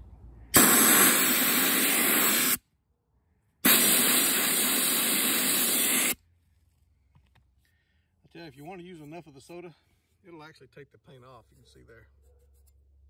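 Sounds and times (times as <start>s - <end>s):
soda blaster hissing: 0.6s - 2.6s, 3.6s - 6.2s.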